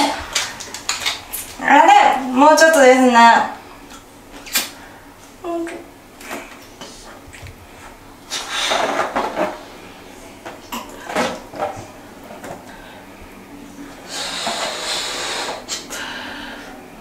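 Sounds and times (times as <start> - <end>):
person blowing up a balloon: 8.3 - 9.2, 14.1 - 16.0.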